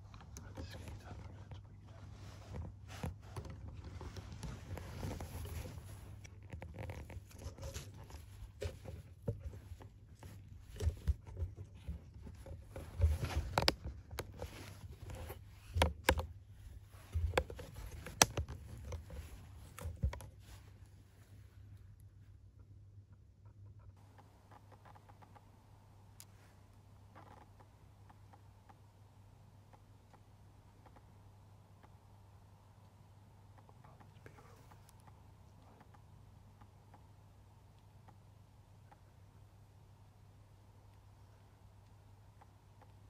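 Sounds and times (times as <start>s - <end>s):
clothing rustling: 1.9s - 21.9s.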